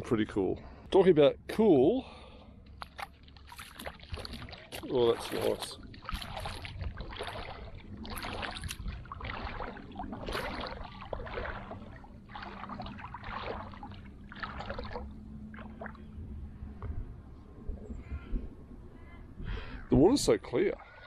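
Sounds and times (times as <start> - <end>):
footsteps splashing in shallow water: 2.7 - 16.1.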